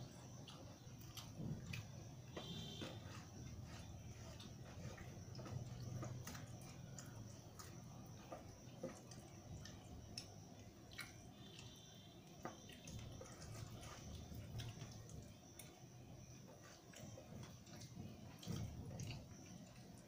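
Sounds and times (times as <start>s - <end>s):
chewing: 0.0s - 15.8s, 16.4s - 20.0s
fingers mixing food on steel plate: 0.0s - 15.8s
steady low hum: 0.0s - 20.0s.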